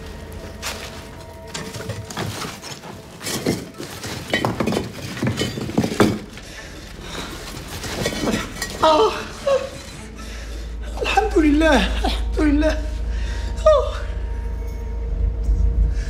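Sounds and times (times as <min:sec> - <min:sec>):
broken glass and rubble crunching: 0:00.1 - 0:10.1
man sobbing: 0:08.1 - 0:14.4.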